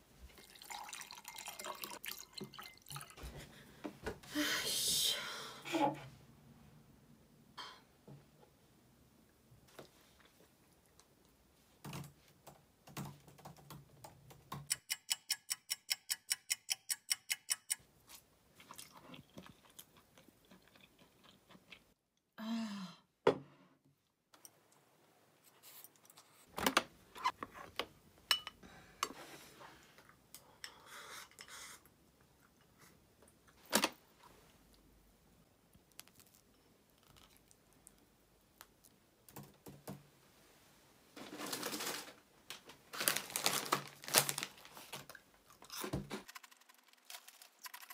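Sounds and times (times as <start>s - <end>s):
person chewing: 18.1s - 22.0s, 45.1s - 47.9s.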